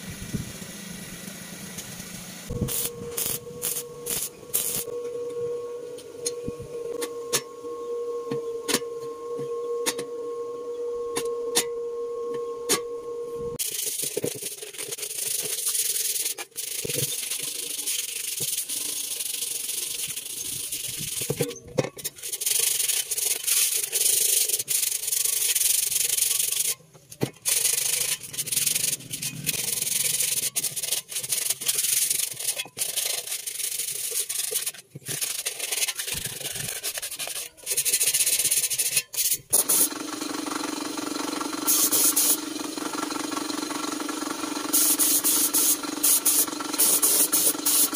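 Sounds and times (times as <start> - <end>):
steady hum: 0.0 - 22.3
spray gun hissing: 2.4 - 4.9, 41.6 - 42.5, 44.4 - 47.9
abrasive rubbing on sheet metal: 27.4 - 39.5.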